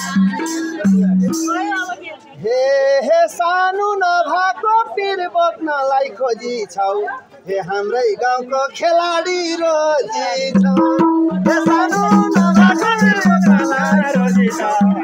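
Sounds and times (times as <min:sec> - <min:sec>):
rattling percussion accompaniment: 0:00.0 - 0:02.1, 0:10.5 - 0:15.0
person singing folk melody: 0:00.0 - 0:15.0.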